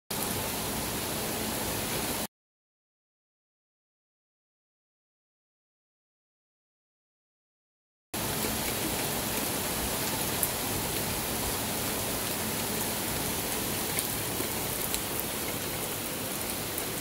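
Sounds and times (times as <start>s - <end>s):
steady rain hiss: 0.1s - 2.3s, 8.2s - 17.0s.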